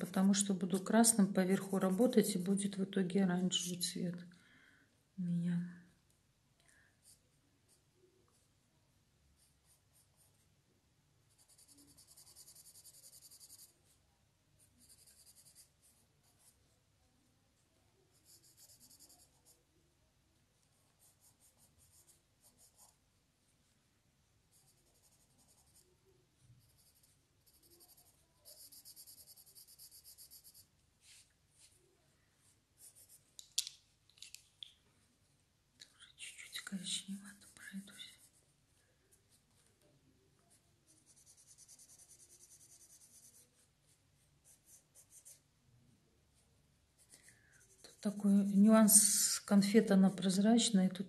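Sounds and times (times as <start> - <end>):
drawing tool scratching on paper: 11.3 - 13.8, 14.7 - 16.6, 18.1 - 19.6, 26.6 - 31.2, 40.9 - 43.6.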